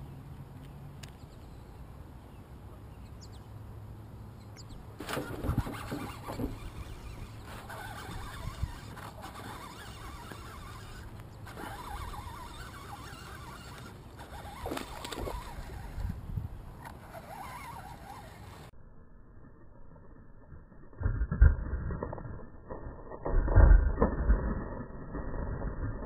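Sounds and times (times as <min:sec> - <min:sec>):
fish splashing: 0:05.0 - 0:16.1
water sloshing around boat: 0:05.0 - 0:16.2.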